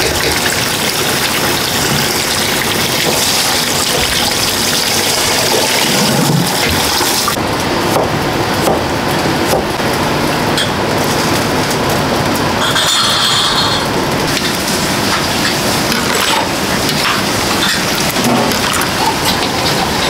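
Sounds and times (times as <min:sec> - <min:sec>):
glass and dishes clinking: 0:12.6 - 0:13.9, 0:15.4 - 0:20.0.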